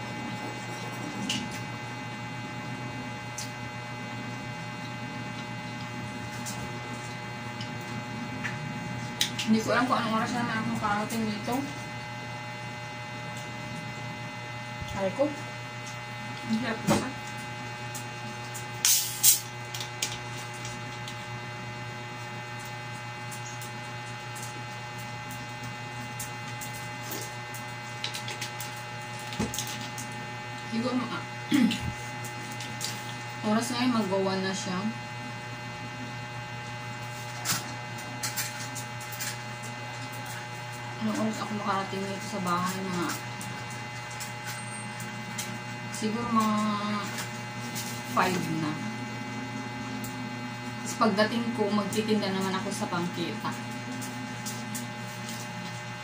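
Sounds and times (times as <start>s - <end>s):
steady electrical hum: 0.0s - 56.0s.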